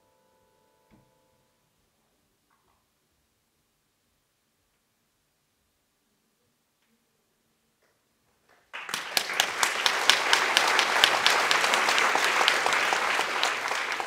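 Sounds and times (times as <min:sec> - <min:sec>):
audience applause: 0:08.5 - 0:14.0.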